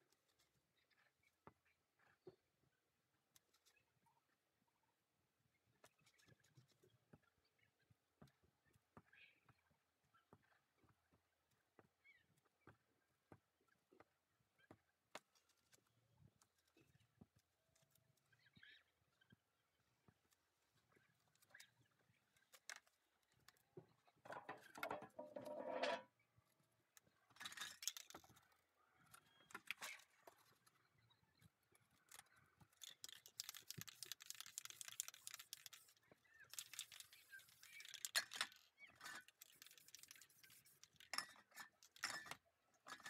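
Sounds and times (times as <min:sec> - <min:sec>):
spray can clicks and rattles: 0:27.4 - 0:28.2, 0:32.8 - 0:43.0
paper rustling: 0:32.8 - 0:41.2
spray paint can hissing: 0:33.0 - 0:38.2.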